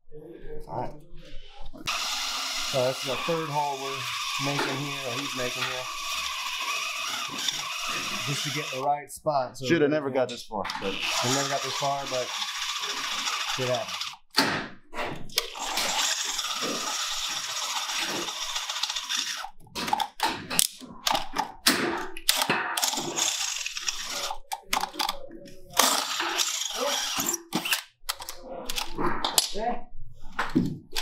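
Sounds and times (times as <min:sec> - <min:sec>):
electric drill boring metal: 0:01.9 - 0:08.8, 0:10.7 - 0:14.3, 0:15.4 - 0:19.5, 0:22.8 - 0:24.4, 0:25.8 - 0:27.8.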